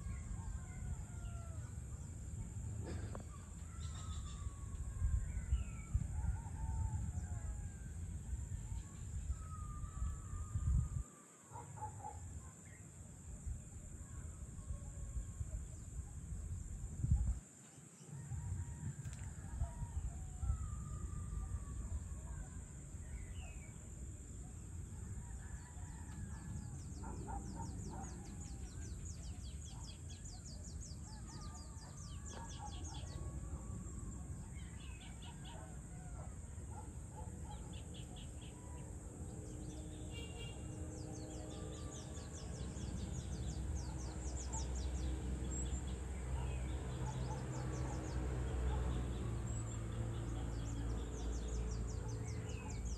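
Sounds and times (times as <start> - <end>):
birds calling and chirping: 0.0 - 7.7, 25.2 - 52.9.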